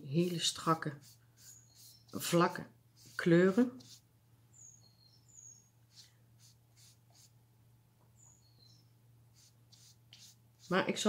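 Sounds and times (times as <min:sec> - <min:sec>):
sponge rubbing on paper: 0:00.1 - 0:04.1, 0:05.9 - 0:07.4, 0:09.3 - 0:11.0
faint high bird chirps: 0:01.4 - 0:02.4, 0:04.5 - 0:06.1, 0:08.0 - 0:09.5.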